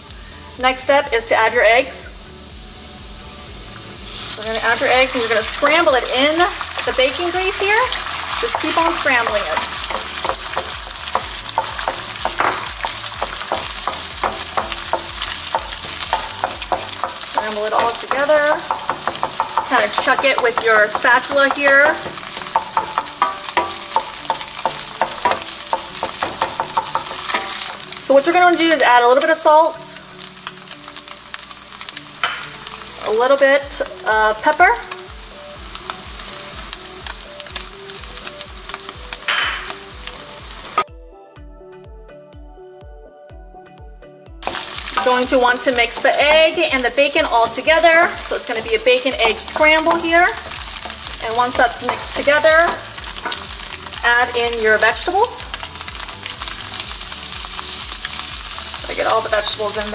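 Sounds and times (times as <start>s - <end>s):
eggs sizzling in a pan: 0.0s - 40.9s, 44.4s - 59.9s
background music with steady beat: 0.0s - 59.9s
spatula scraping a pan: 7.9s - 27.9s.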